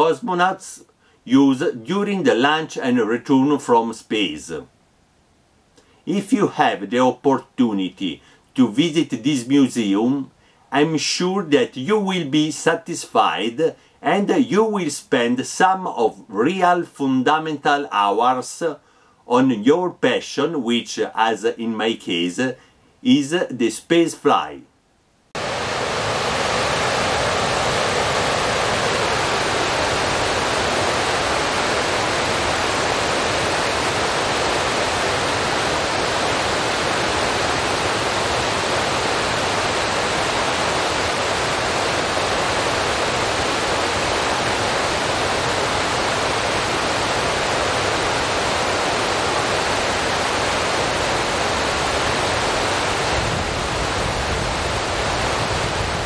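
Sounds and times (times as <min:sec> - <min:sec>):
steady rushing noise: 0:25.3 - 0:56.0.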